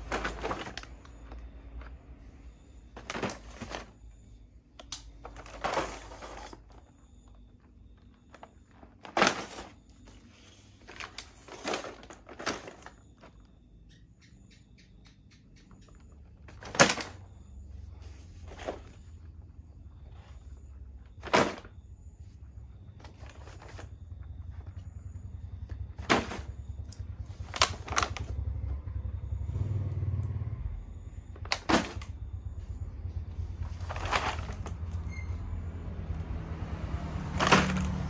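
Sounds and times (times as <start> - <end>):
plastic packaging clacking and rustling: 0.0 - 2.1, 2.9 - 4.1, 4.8 - 7.0, 8.3 - 13.5, 16.4 - 17.3, 21.2 - 21.7, 26.0 - 26.5, 27.4 - 28.3, 31.4 - 32.1, 33.6 - 35.0, 37.3 - 38.0
steady low hum: 17.2 - 36.4.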